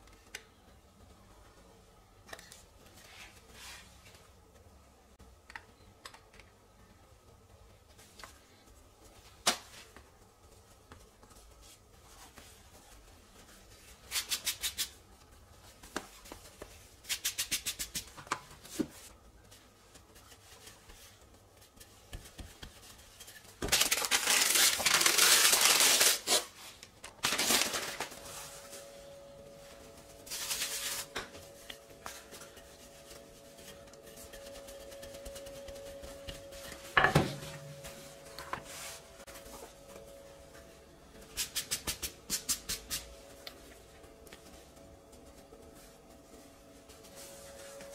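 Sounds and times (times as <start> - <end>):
steady hum: 6.6 - 47.9
rolling pin rolling over dough: 7.3 - 23.8, 27.8 - 47.9.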